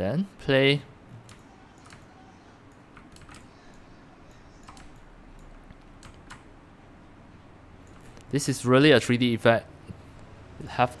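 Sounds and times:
low steady hum: 0:00.0 - 0:11.0
keyboard and mouse clicks: 0:01.2 - 0:02.1, 0:02.7 - 0:06.5, 0:07.8 - 0:08.3.

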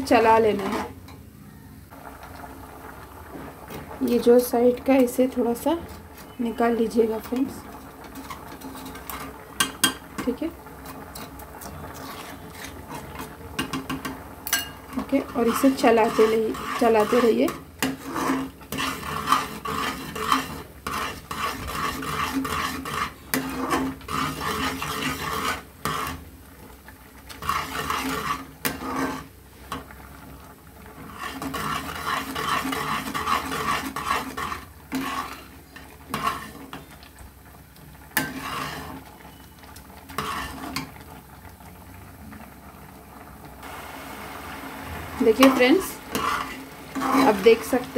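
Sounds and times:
metal spatula scraping thick mixture: 0:00.0 - 0:01.0, 0:04.9 - 0:26.3, 0:27.3 - 0:29.9, 0:30.8 - 0:37.0, 0:38.1 - 0:41.0, 0:45.2 - 0:47.9
spatula clinking against pot: 0:13.6 - 0:14.8.

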